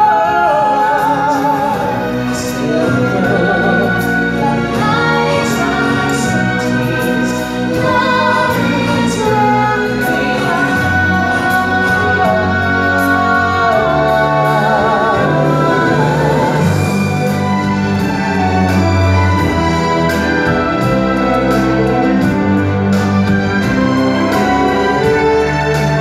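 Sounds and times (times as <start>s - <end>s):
woman singing into microphone: 0.0s - 17.0s
choir singing: 0.0s - 22.6s
full band backing: 0.0s - 26.0s.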